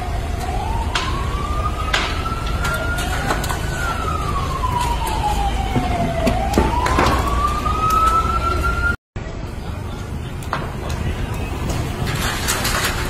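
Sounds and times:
siren wailing: 0:00.0 - 0:09.0
fire cracking and popping: 0:00.2 - 0:08.6, 0:09.5 - 0:13.0.

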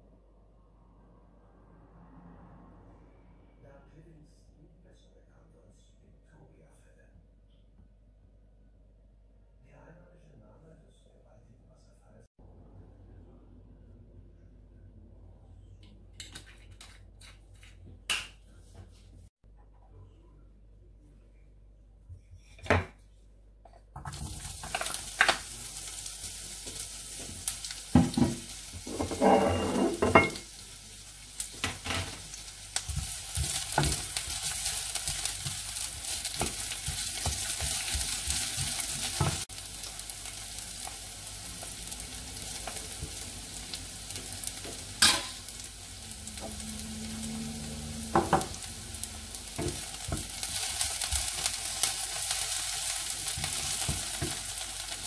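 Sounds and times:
garlic and onion sizzling in oil: 0:24.0 - 0:55.0.

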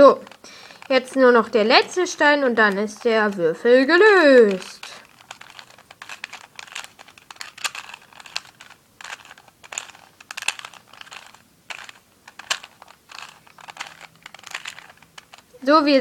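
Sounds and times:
plastic puzzle cube layers clicking: 0:00.0 - 0:03.5, 0:04.1 - 0:15.6.

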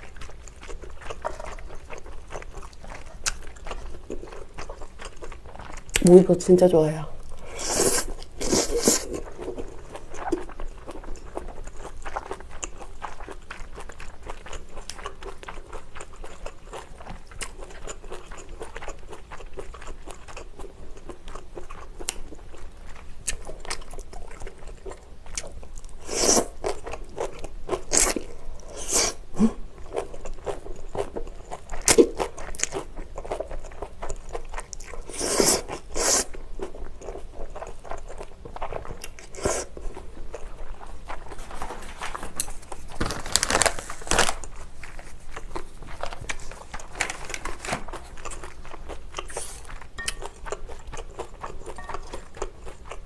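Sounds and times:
chewing noodles: 0:00.0 - 0:06.2, 0:07.2 - 0:53.0
noodle slurps: 0:26.0 - 0:26.6.

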